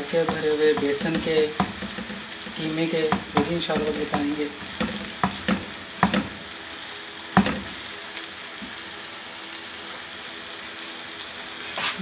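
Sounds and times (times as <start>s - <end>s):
spatula stirring: 0.0s - 6.4s
vegetables sizzling in a pan: 0.0s - 12.0s.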